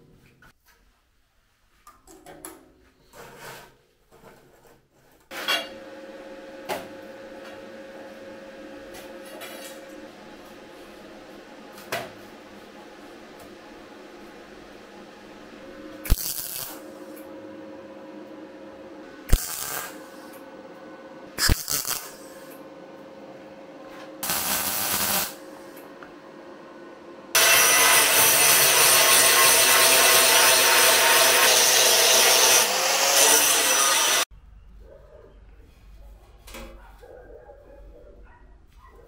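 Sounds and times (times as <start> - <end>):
power tool running: 24.2 - 25.4, 27.3 - 34.3.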